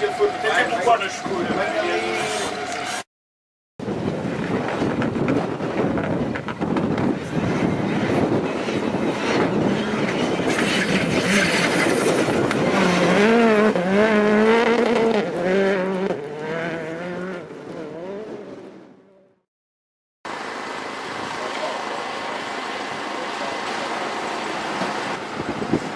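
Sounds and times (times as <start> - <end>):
rally car engine revving: 4.6 - 19.4.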